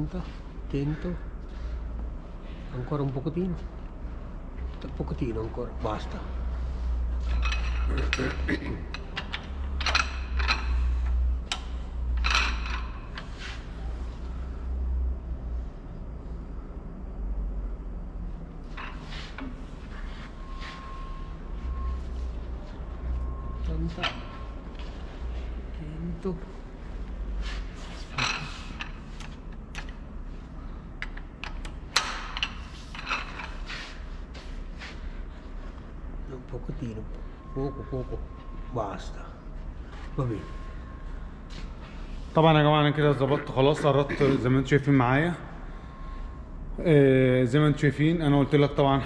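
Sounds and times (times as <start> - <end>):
steady low hum: 0.0 - 49.0
metal tools clicking: 7.3 - 13.3.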